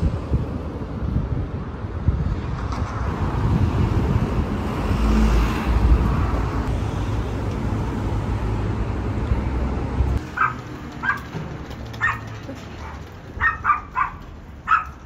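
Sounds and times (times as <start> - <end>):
street traffic: 0.0 - 15.0
car passing: 2.1 - 12.2.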